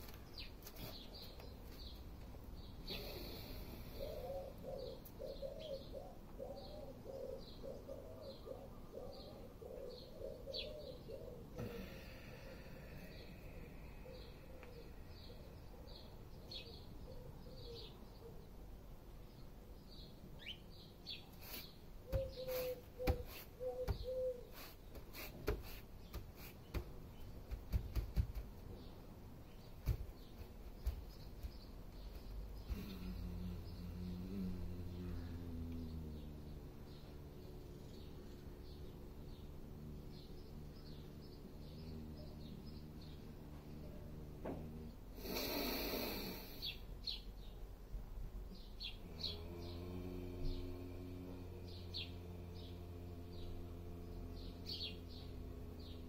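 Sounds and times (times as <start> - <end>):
small bird chirping: 0.0 - 18.4, 19.3 - 47.6, 48.5 - 56.0
faint bird chirps: 2.6 - 18.6, 20.4 - 25.3
pigeon cooing: 2.9 - 13.2, 13.9 - 18.5, 22.0 - 24.8, 32.6 - 39.4.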